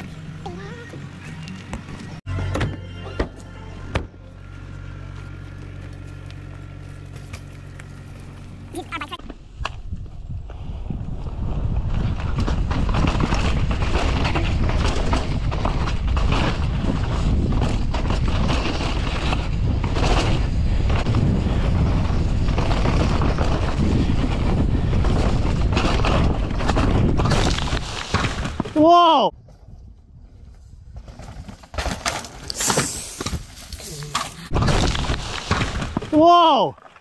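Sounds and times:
tyres rumbling on dirt and rocks: 0.0 - 29.0, 30.8 - 37.0
wind rush over microphone: 9.5 - 28.6
bike rattling and knocking: 11.1 - 28.8.

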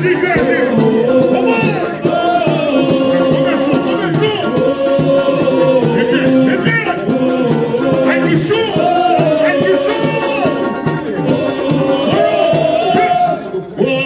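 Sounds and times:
men singing samba into microphones: 0.0 - 14.0
samba music: 0.0 - 14.0.

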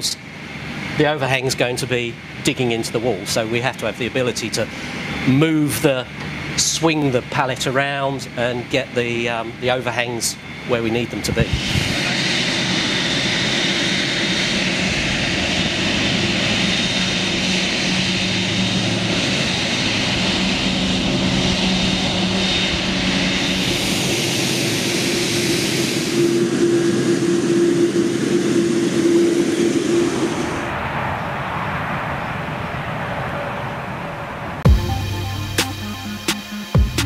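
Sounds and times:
jet engines roaring: 0.0 - 37.0.

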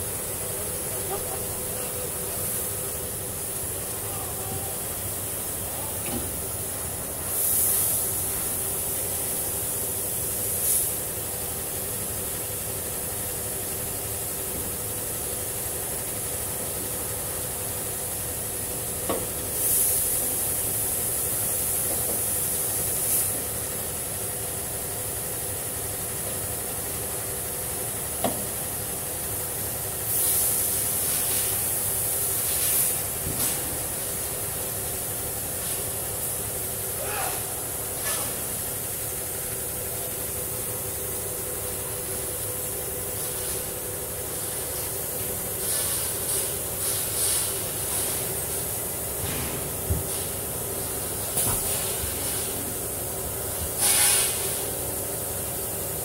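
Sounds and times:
factory machinery hum: 0.0 - 56.0
compressed air hisses: 1.2 - 11.4, 19.2 - 23.6, 30.0 - 39.0, 44.3 - 55.9.

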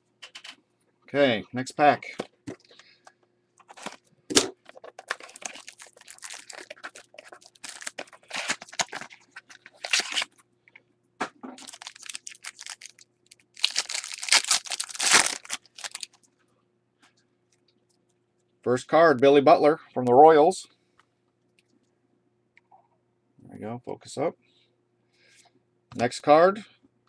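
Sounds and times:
rustling and scraping of cards: 2.5 - 10.5
foil wrapper crinkling and tearing: 4.8 - 10.4, 11.6 - 16.2
sharp crack of card pack: 9.8 - 10.3, 13.6 - 16.1.

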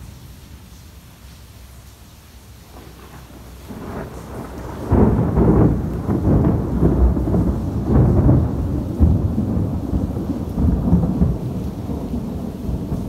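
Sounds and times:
thunder rumbling: 2.6 - 13.0.

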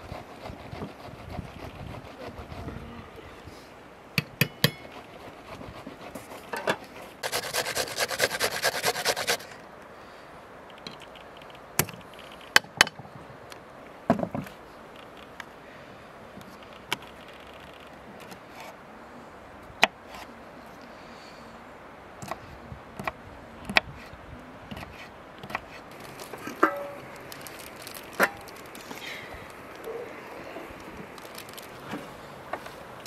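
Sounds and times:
rapid rhythmic scraping: 4.8 - 9.6.

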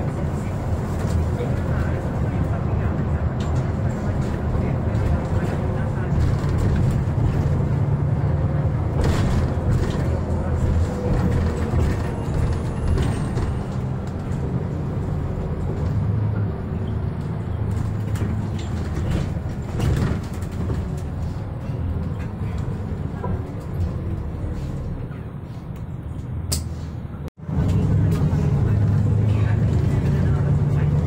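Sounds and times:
bus engine and road drone: 0.0 - 31.0.

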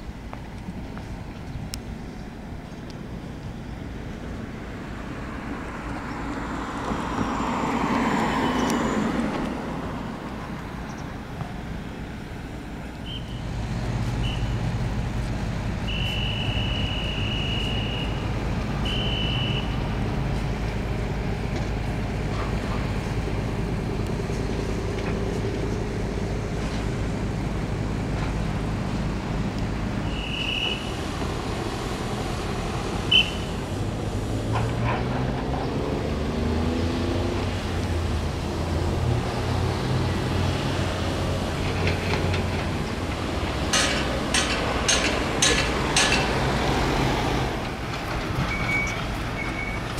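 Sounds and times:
vehicle passing by: 4.6 - 10.5, 31.0 - 48.5.

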